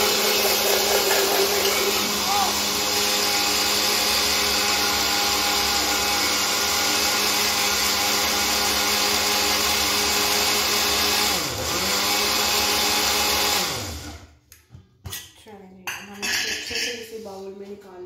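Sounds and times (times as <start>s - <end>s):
mixer grinder motor running: 0.0s - 14.3s.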